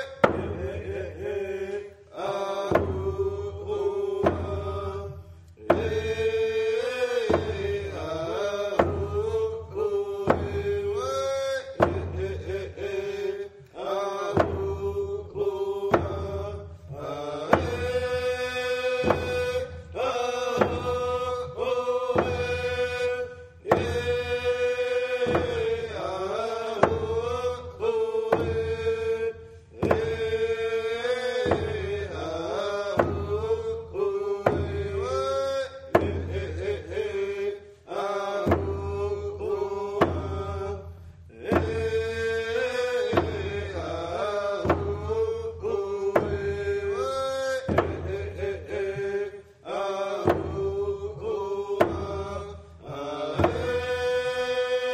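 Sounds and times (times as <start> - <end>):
men chanting: 0.0 - 54.9
percussive beat: 14.3 - 29.0, 47.6 - 49.0.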